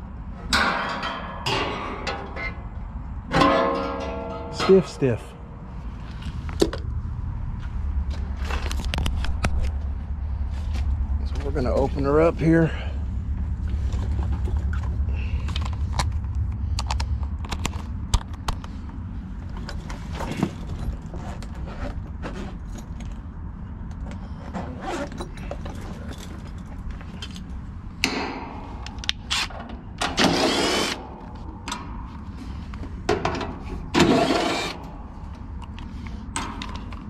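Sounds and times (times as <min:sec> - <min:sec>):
low rumble: 0:00.0 - 0:24.4
tools clicking and rattling: 0:24.8 - 0:37.0
cordless driver whirring: 0:30.1 - 0:31.0, 0:34.0 - 0:34.8.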